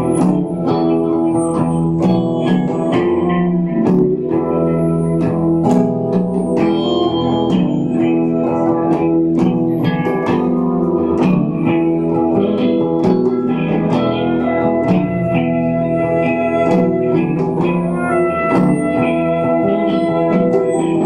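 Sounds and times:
electric bass: 0.0s - 21.0s
electric guitars sustained notes: 0.0s - 21.0s
drum and percussion hits: 1.5s - 4.4s.

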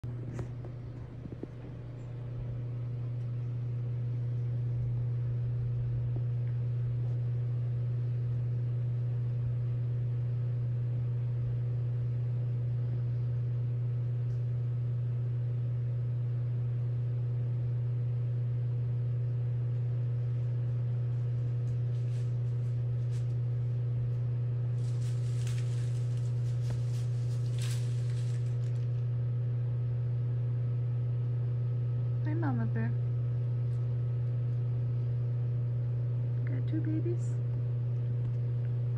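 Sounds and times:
low machine hum: 0.0s - 38.9s.

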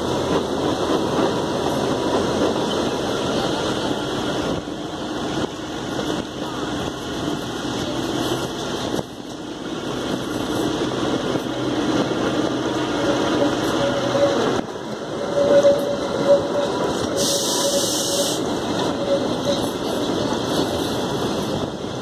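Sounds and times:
train coaches rumbling on track: 0.0s - 22.0s.

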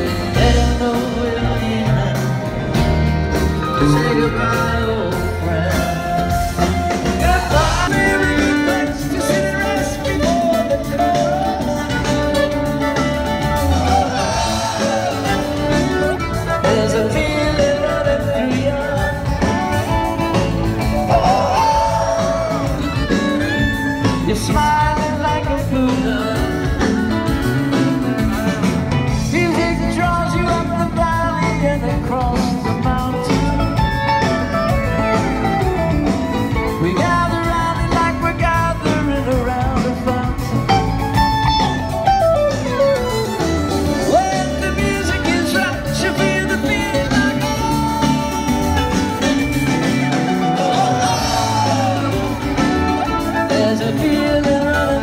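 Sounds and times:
drums: 0.0s - 55.0s
upright bass: 0.0s - 55.0s
fiddle: 40.7s - 44.9s.

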